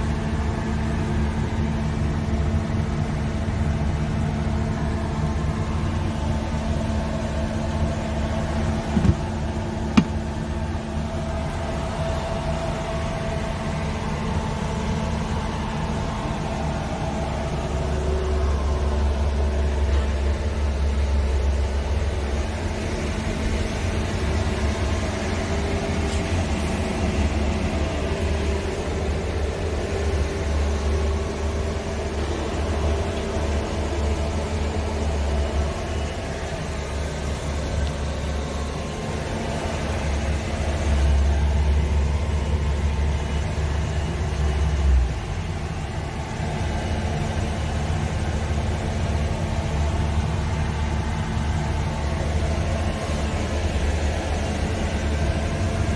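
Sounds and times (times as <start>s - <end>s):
truck diesel engine idling: 0.0s - 55.9s.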